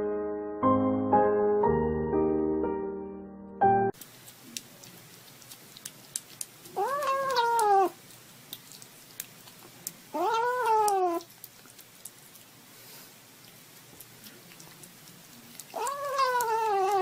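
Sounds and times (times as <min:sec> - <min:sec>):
chewing and smacking: 0:04.0 - 0:12.7, 0:13.3 - 0:17.0
kitten meowing: 0:06.7 - 0:08.0, 0:10.1 - 0:11.3, 0:15.7 - 0:17.0.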